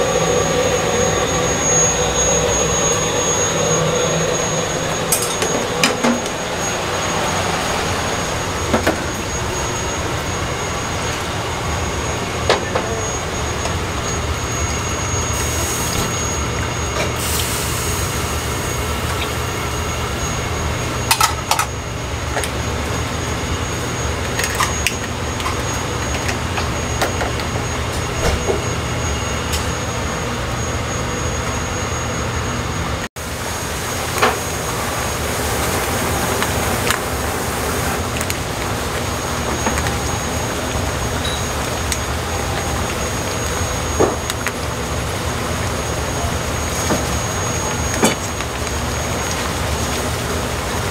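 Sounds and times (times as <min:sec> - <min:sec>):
gas burners roaring: 0:00.0 - 0:50.9
pots and utensils clinking: 0:05.1 - 0:06.3, 0:21.0 - 0:21.8.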